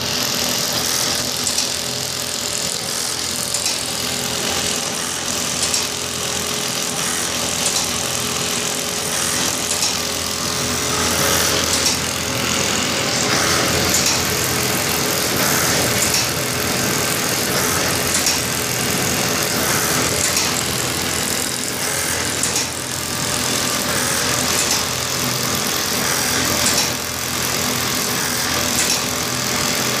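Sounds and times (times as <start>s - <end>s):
stitching machine running: 0.0s - 30.0s.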